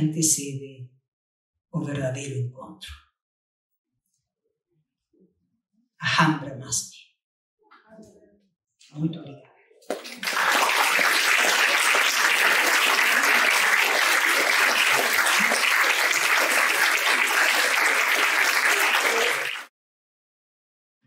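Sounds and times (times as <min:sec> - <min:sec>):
audience applauding: 0:09.9 - 0:19.7.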